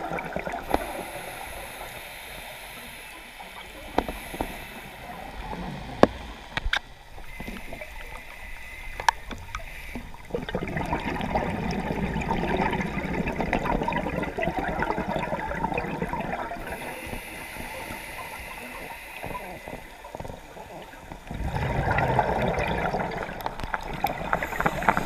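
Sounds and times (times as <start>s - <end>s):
diver's exhaled bubbles gurgling: 0.0s - 1.8s, 10.2s - 18.4s, 19.3s - 25.0s
underwater ambience: 0.0s - 25.0s
sharp underwater clicks: 6.0s - 10.1s.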